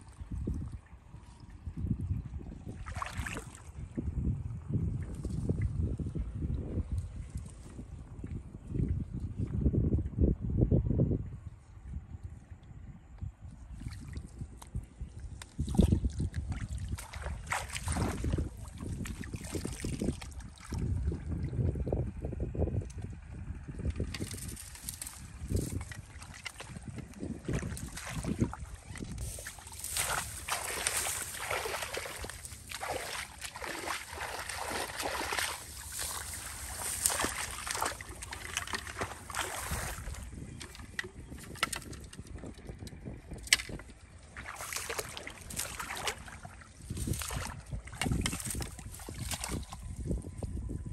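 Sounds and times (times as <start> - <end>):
muddy water splashing: 0.0 - 9.0, 13.7 - 21.8, 22.9 - 50.3
grass rustling: 24.0 - 41.9, 44.3 - 49.9.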